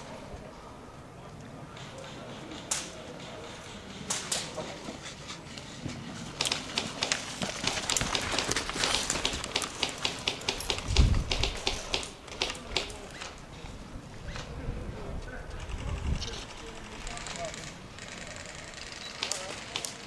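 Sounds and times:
sharp clicks: 6.4s - 13.3s, 15.5s - 20.0s
footsteps on rubble and grass: 7.2s - 9.8s.

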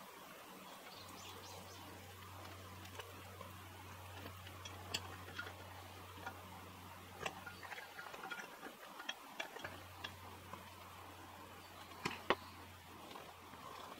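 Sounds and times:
knife scraping waffle iron: 7.2s - 10.2s.

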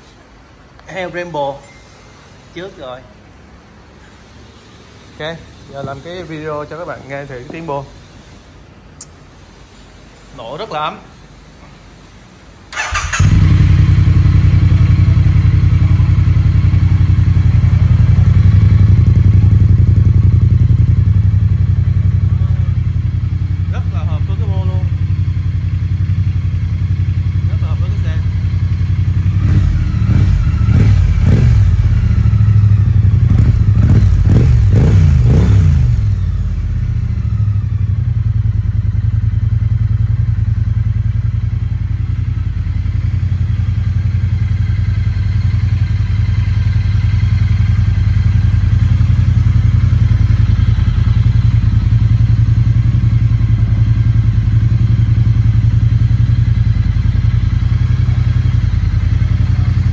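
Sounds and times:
motorcycle engine revving and idling: 12.7s - 59.9s.

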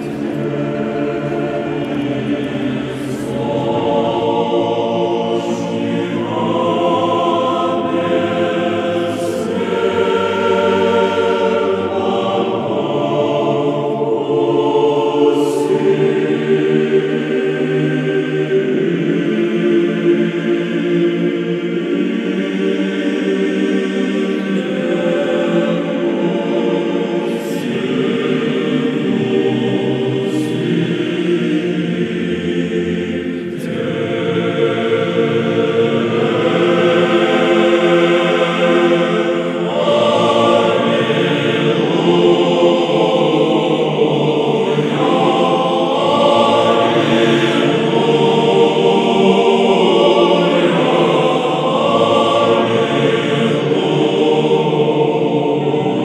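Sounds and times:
choir singing chant-like music: 0.0s - 56.0s.

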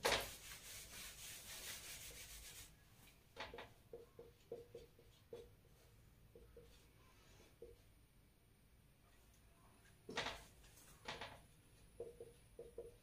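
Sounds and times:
duster wiping whiteboard: 0.0s - 2.8s.

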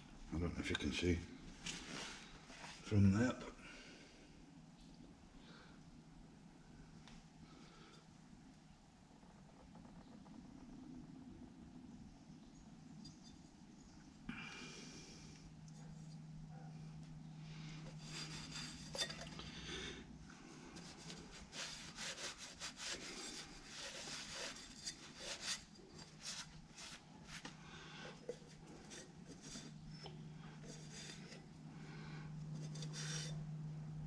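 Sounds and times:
steady low hum: 0.0s - 34.0s
rag rubbing metal: 17.8s - 19.4s, 20.8s - 27.5s, 28.1s - 31.6s, 32.5s - 33.4s.

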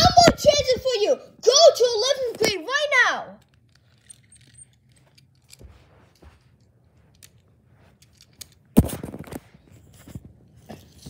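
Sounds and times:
rustling scrape: 3.7s - 11.0s.

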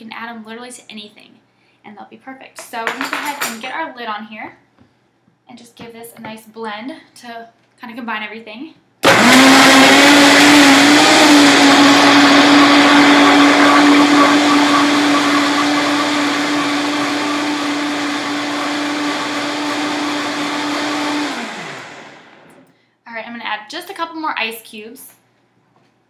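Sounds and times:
blender running: 9.0s - 22.7s.

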